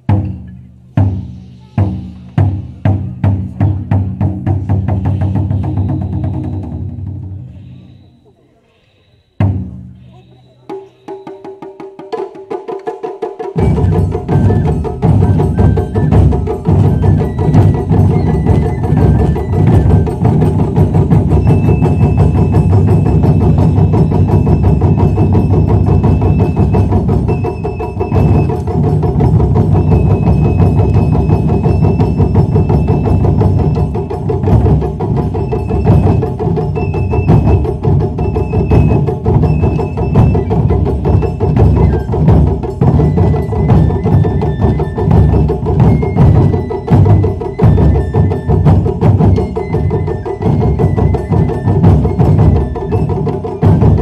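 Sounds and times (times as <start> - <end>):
taiko drums: 0.0 - 7.6, 9.4 - 54.0.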